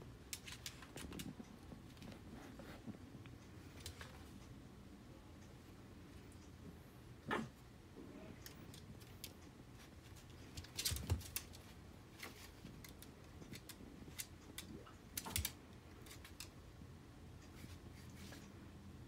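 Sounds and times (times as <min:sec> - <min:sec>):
dog claws on wooden floor: 0:10.4 - 0:16.5.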